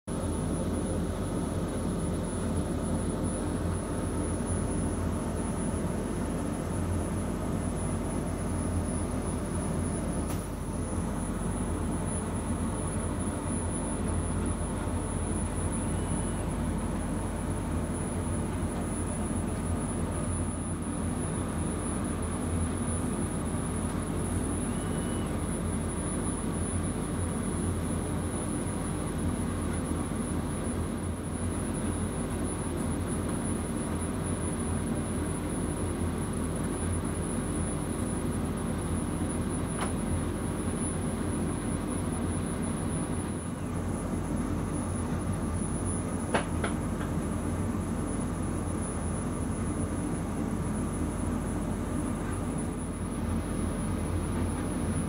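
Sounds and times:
faint high whine: 0.1 - 55.0
laser cutter mechanical drone: 0.1 - 55.0.

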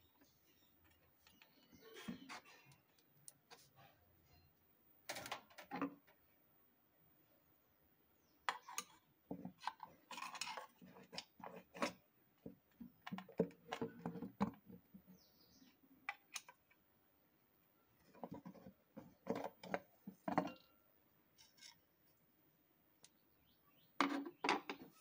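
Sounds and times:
metallic clicks and scrapes: 8.5 - 12.0.

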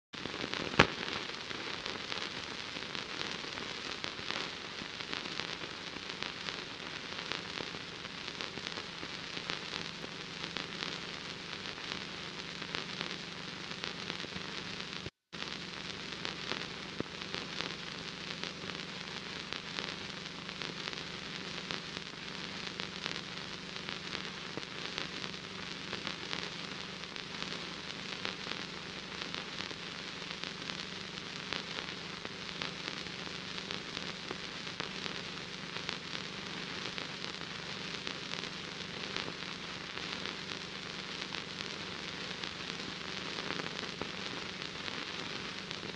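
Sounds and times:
film soundtrack crackle and hiss: 0.2 - 45.9.

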